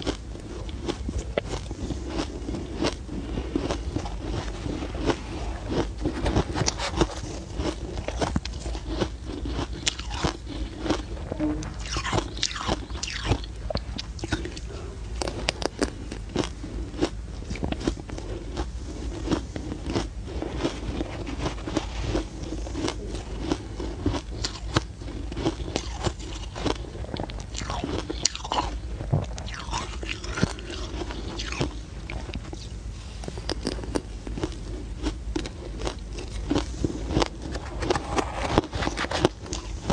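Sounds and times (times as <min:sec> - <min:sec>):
ice being bitten and chewed: 0:00.0 - 0:32.7, 0:33.3 - 0:39.9.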